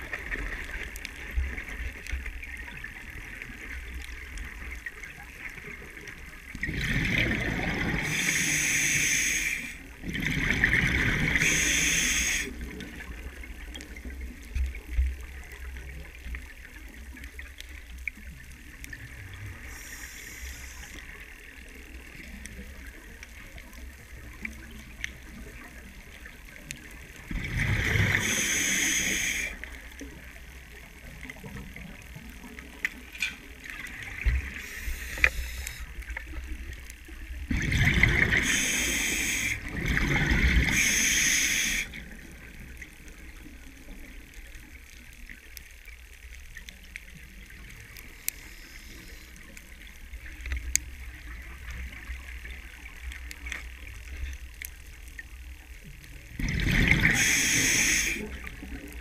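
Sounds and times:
quiet bubbling and water noise: 0:00.0 - 0:59.0
gushes of exhaled bubbles: 0:06.6 - 0:08.4, 0:10.0 - 0:11.6, 0:27.2 - 0:29.4, 0:37.5 - 0:42.0, 0:56.4 - 0:59.0.

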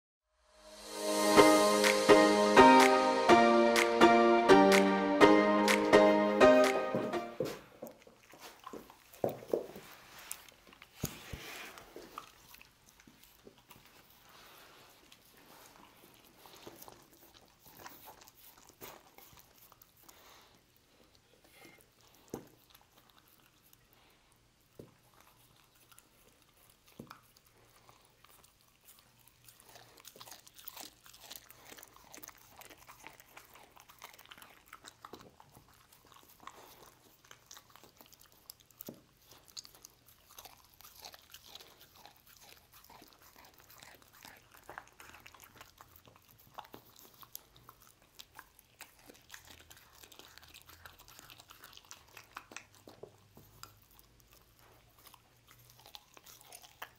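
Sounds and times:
dog chewing and gnawing bone: 0:07.6 - 0:56.9.

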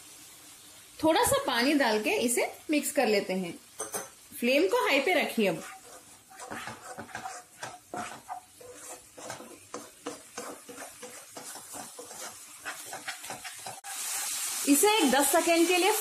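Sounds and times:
light sizzle: 0:00.0 - 0:16.0
spatula scraping a wok: 0:05.1 - 0:14.6.

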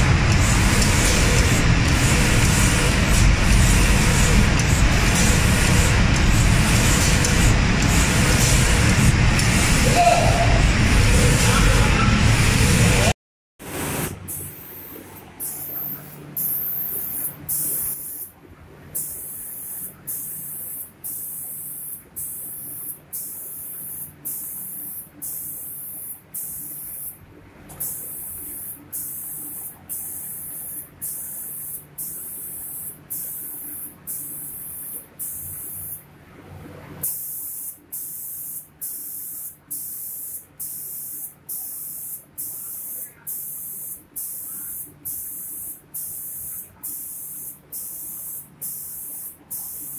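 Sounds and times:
spray gun hissing bursts: 0:00.0 - 0:10.5, 0:13.7 - 0:18.3, 0:19.0 - 0:27.2, 0:27.8 - 0:36.0, 0:37.0 - 0:49.9
low machine hum: 0:00.0 - 0:17.5.

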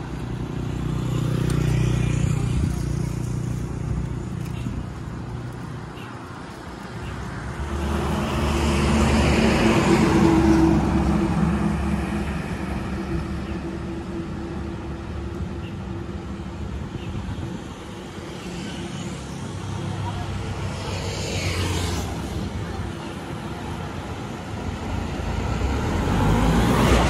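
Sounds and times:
steady traffic noise: 0:00.0 - 0:27.0
vehicle passing by: 0:07.4 - 0:14.9, 0:18.3 - 0:27.0.

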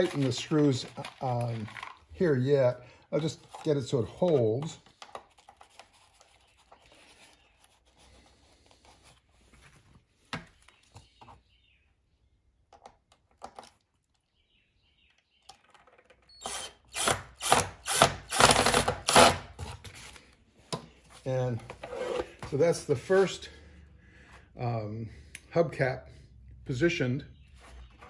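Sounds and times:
cordless drill short bursts: 0:16.4 - 0:19.4.

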